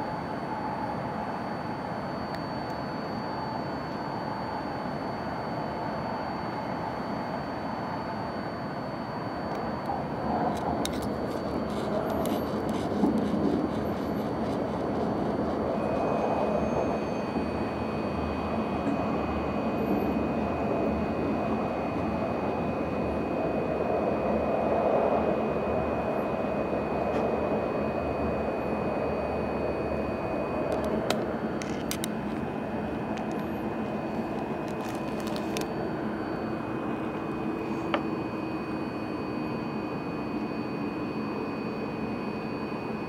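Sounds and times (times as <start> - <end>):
thin high whine: 0.0 - 43.0
train rumble: 9.6 - 38.0.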